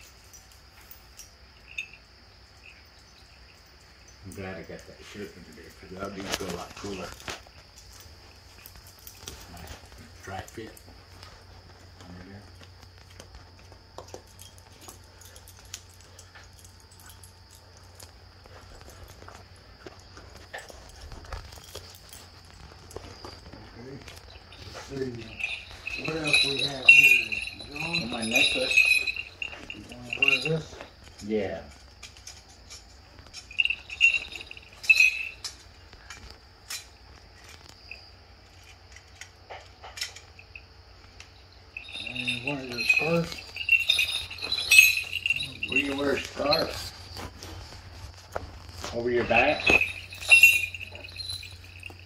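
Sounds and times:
necklace clicking and clinking: 12.0 - 52.0.

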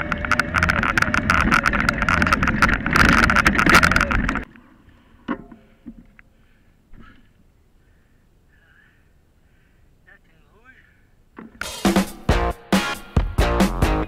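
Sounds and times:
camera rattling on bike: 0.0 - 4.5.

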